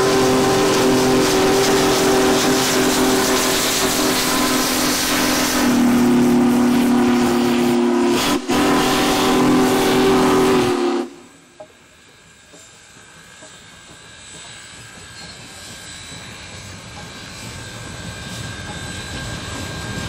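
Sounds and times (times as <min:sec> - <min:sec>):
steam locomotive chime whistle: 0:00.0 - 0:11.6
steam engine hiss and rumble: 0:00.0 - 0:20.0.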